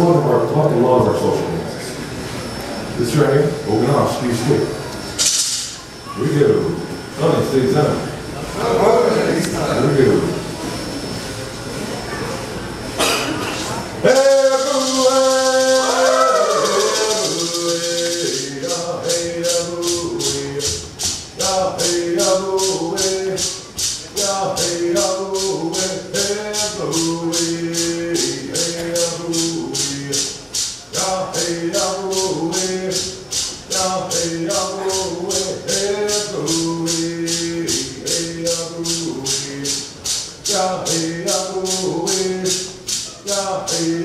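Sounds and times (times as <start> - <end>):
rattle shaken in a beat: 5.2 - 5.8, 14.0 - 44.0
voices singing: 5.8 - 11.1, 13.0 - 44.0.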